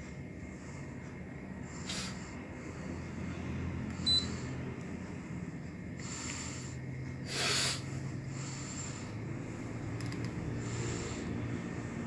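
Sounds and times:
steady low hum: 0:00.0 - 0:12.0
air conditioner beep: 0:03.9 - 0:04.7.

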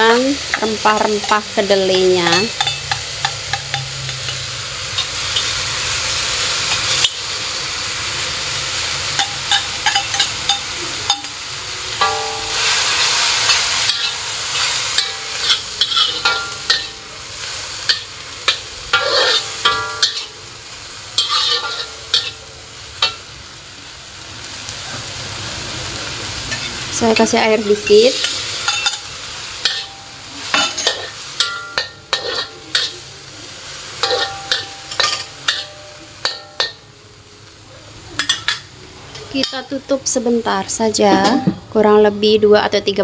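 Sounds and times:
vegetables sizzling in a wok: 0:00.0 - 0:43.0
metal spatula scraping a wok: 0:02.3 - 0:07.3, 0:08.8 - 0:20.4, 0:21.2 - 0:23.2, 0:27.7 - 0:33.0, 0:34.0 - 0:36.8.

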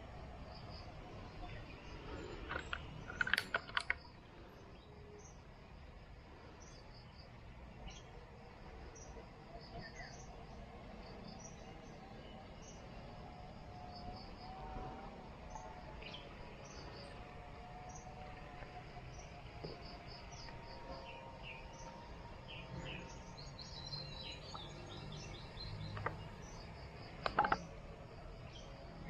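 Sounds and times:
insects chirping: 0:00.0 - 0:29.0
birds chirping: 0:13.7 - 0:28.8.

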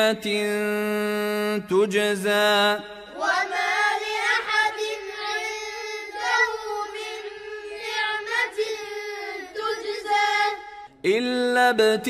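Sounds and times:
child chanting melodic recitation: 0:03.1 - 0:10.6.

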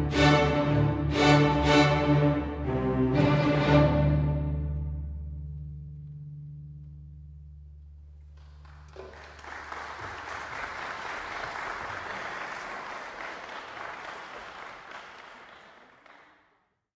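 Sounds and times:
string orchestra chord: 0:00.0 - 0:06.2
audience applause: 0:08.4 - 0:16.6.

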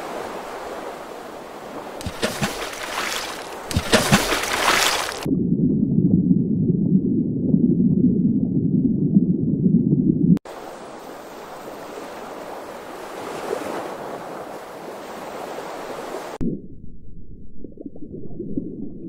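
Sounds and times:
muffled underwater water noise: 0:00.0 - 0:19.0
ocean surf hiss: 0:10.5 - 0:16.4.

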